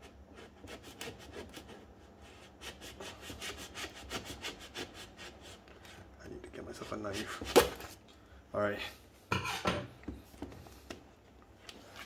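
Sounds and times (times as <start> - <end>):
serrated knife sawing through sticker: 0.3 - 1.8.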